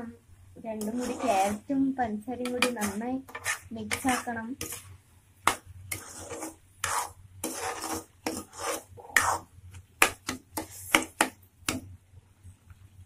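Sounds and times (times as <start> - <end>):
metal spoon scraping a pan: 0.7 - 1.7, 2.4 - 11.3.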